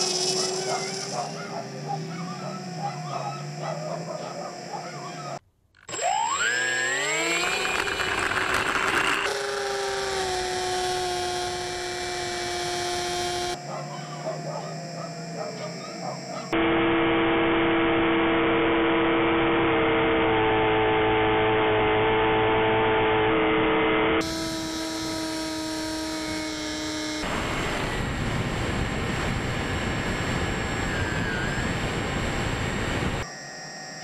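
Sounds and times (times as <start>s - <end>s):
electric motor and propeller whine: 0.0s - 34.0s
wind rush: 27.3s - 33.2s.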